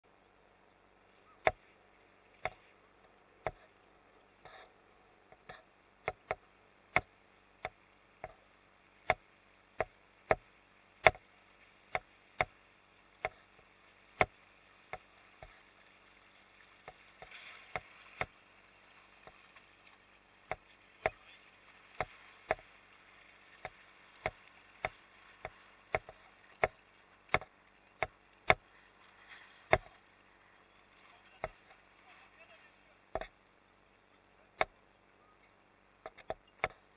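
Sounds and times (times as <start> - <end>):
faint hiss of water: 0.1 - 36.9
waves slapping a boat hull: 13.2 - 33.3.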